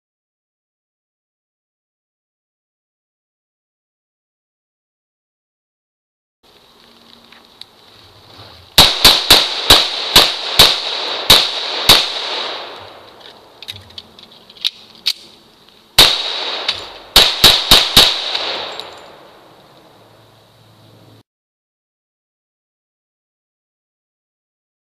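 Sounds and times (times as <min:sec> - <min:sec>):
gunshots: 0:08.8 - 0:13.2, 0:16.0 - 0:19.4
reload clicks: 0:16.0 - 0:19.9.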